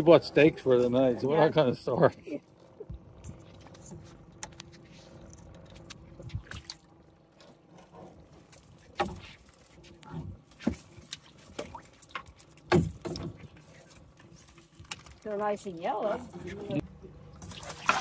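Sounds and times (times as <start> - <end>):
knocks and clatter of crab traps: 10.3 - 13.6
thumps on boat: 12.7 - 13.4.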